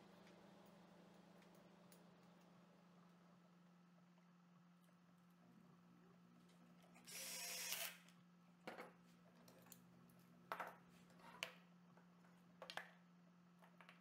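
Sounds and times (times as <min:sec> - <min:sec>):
cordless drill driving screw: 0:07.0 - 0:08.0.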